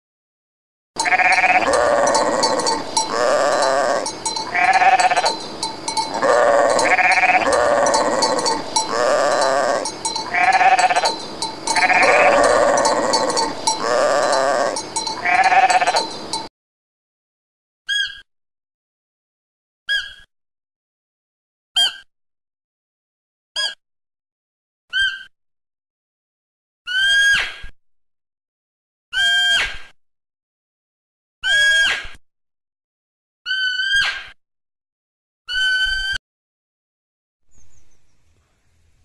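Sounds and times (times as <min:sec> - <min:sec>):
sheep bleating: 0:01.0 - 0:16.5.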